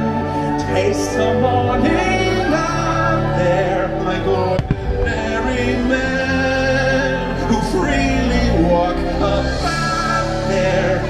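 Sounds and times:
fireworks show music with singing: 0.0 - 11.0
firework bang: 4.6 - 5.6.

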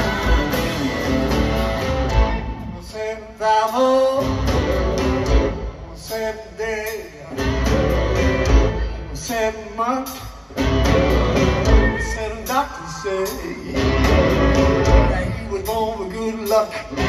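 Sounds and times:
electric guitar bending notes: 0.0 - 2.9
person singing: 0.0 - 10.4
live blues band playing: 0.0 - 17.0.

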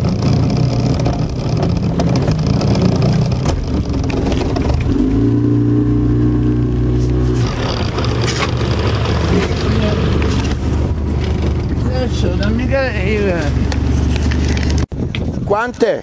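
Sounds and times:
boat motor running: 0.0 - 14.8
pitched motor hum: 0.0 - 14.8.

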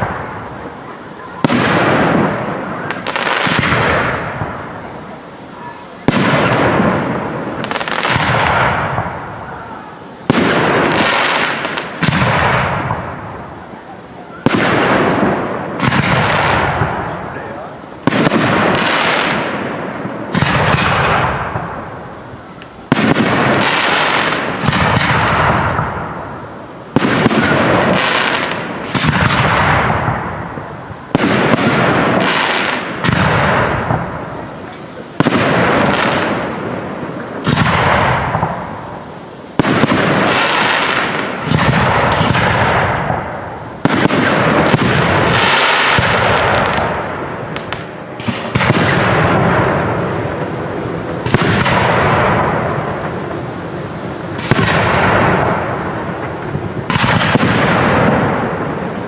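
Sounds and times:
firework shells bursting: 18.0 - 39.0, 39.6 - 59.0.

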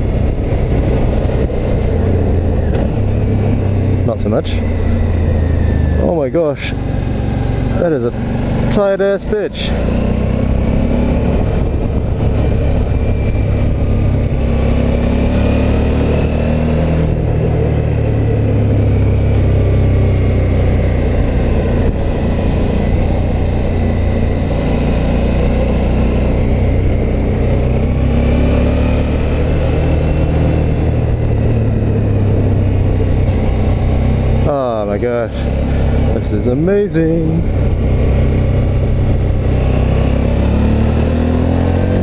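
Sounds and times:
wind rush over microphone: 0.0 - 6.0, 10.4 - 15.2
motorcycle engine accelerating: 0.0 - 42.0.

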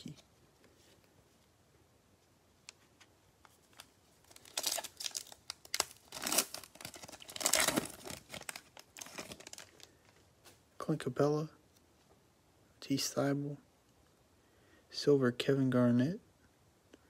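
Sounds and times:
wrapper crinkling: 3.5 - 10.2
card pack wrapper tearing: 3.6 - 9.9.

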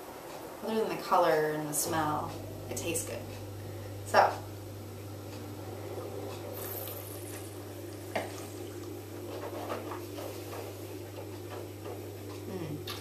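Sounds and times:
steady low hum: 0.0 - 13.0
slurping wine from a glass: 6.5 - 7.6
wet mouth sounds: 6.6 - 7.6.

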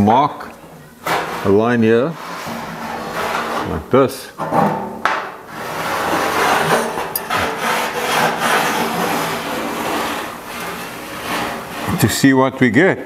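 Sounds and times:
marker scratching on rusty steel: 1.0 - 3.8, 5.5 - 12.2.

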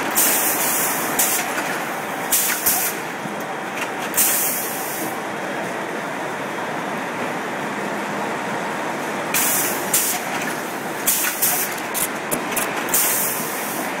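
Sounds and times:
sharp pneumatic air hisses: 12.9 - 13.9.

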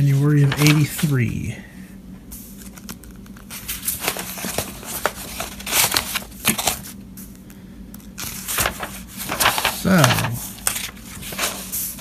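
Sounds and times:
paper pages turning: 0.0 - 1.5, 2.4 - 7.4, 8.0 - 12.0.

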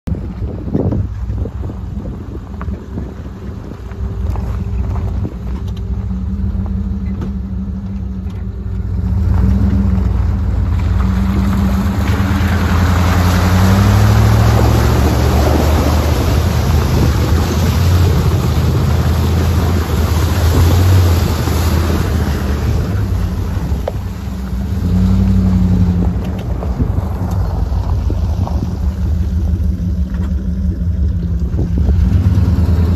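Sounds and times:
vehicle engine under load: 0.1 - 32.9
water splashing: 9.2 - 32.9.

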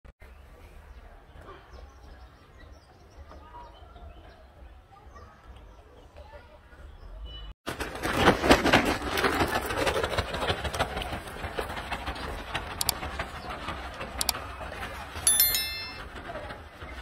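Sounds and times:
short electronic chime: 15.3 - 16.1.

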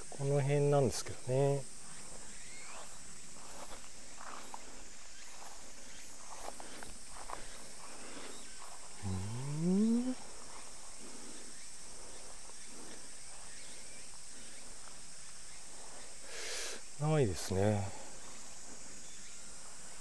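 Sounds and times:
high-pitched insect chorus: 0.0 - 20.0
low rising vocal hum: 9.0 - 10.3.

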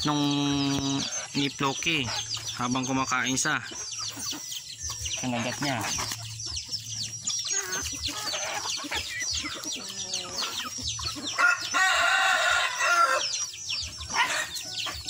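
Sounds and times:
chickens clucking: 0.0 - 15.0
rooster crowing: 11.3 - 13.4.

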